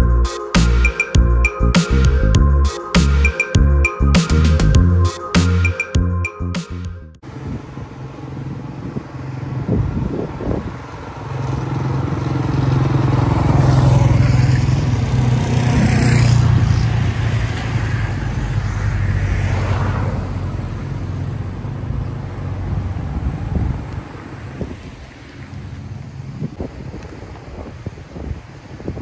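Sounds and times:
engine and tyre noise: 0.0s - 29.0s
motor vehicles passing: 7.2s - 28.8s.

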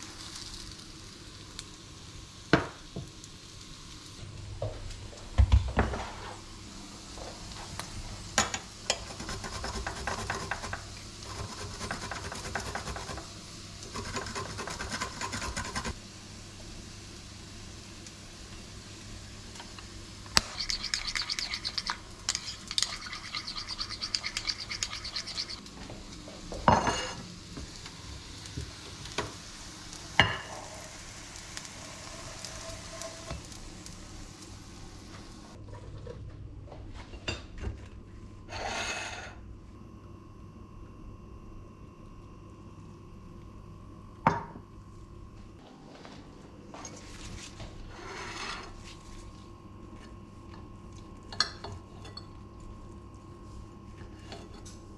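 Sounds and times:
spoon stirring in ceramic bowl: 20.4s - 25.6s.

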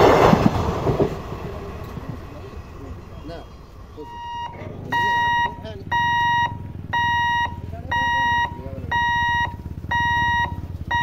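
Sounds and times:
warning buzzer beeping: 4.0s - 11.0s.

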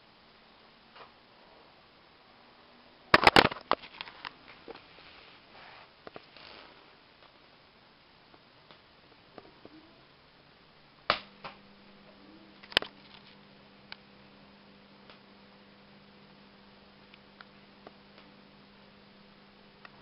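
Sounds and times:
faint electrical hum: 0.0s - 20.0s
electrical arcing clicks and snaps: 3.1s - 4.8s, 8.3s - 9.8s, 11.0s - 11.7s, 12.6s - 14.1s, 15.0s - 15.3s, 17.0s - 18.4s.

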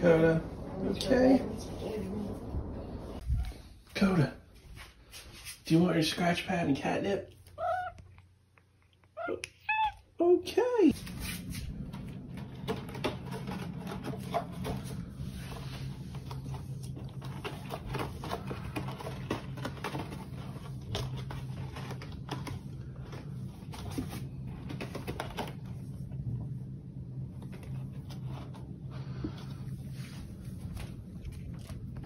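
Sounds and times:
steady low hum: 0.0s - 5.9s, 10.8s - 32.0s.

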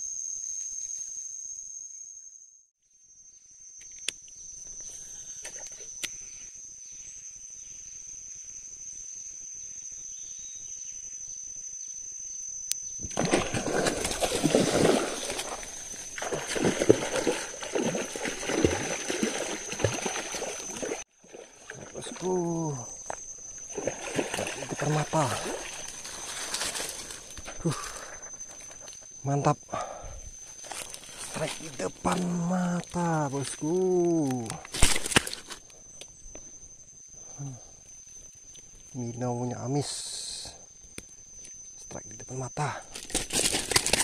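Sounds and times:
high-pitched insect whine: 0.0s - 44.0s
fish splashing at water surface: 13.1s - 21.9s.

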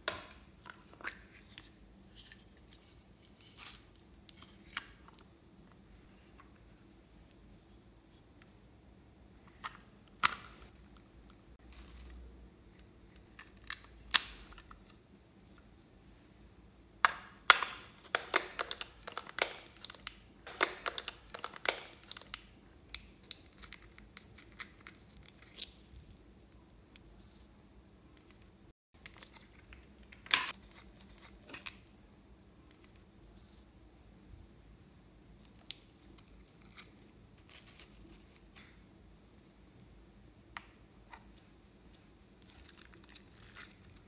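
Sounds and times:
plastic toys clicking and tapping: 17.1s - 22.4s.

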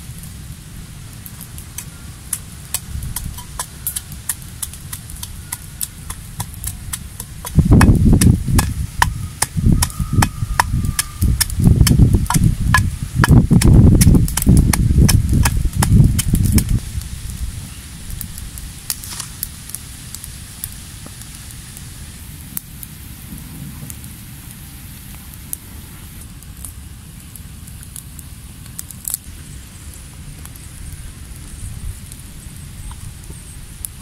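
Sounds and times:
pestle pounding in stone mortar: 6.1s - 16.7s.

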